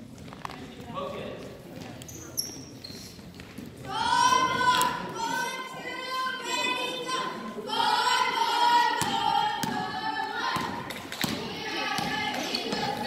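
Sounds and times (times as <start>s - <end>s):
high-pitched voices singing: 3.9s - 13.0s.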